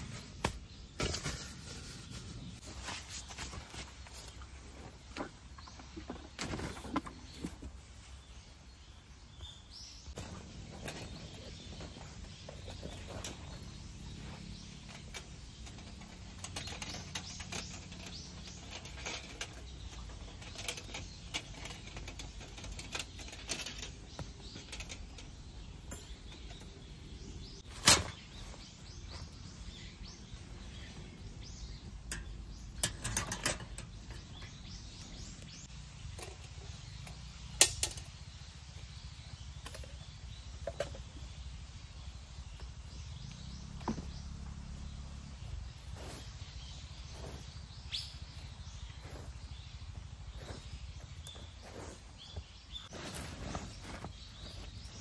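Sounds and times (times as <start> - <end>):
metal grill clinking and rattling: 10.2 - 28.3, 30.7 - 38.2.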